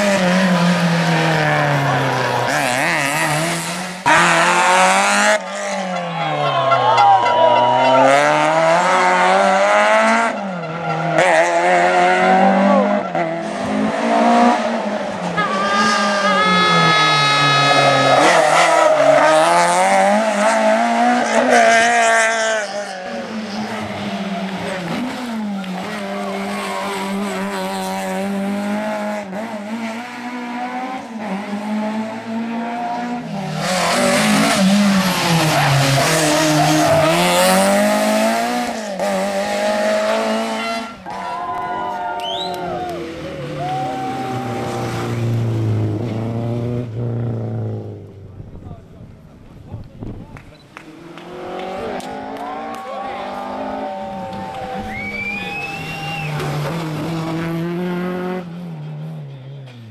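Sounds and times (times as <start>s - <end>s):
rally car engines revving: 0.0s - 59.9s
car passing close: 42.2s - 48.5s.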